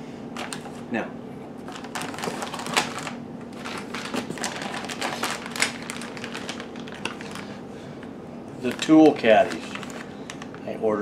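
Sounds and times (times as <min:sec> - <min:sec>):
plastic bags rustling: 0:01.6 - 0:07.9, 0:08.6 - 0:10.8.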